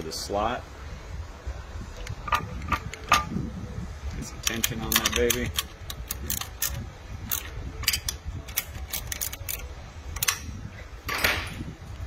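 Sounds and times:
ratcheting wrench clicking: 0:04.4 - 0:10.5
loud metal click: 0:10.2 - 0:11.6.

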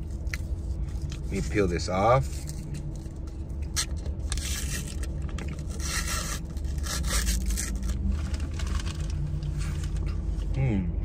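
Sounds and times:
paper sleeve rustling and crinkling: 0:04.3 - 0:10.1.

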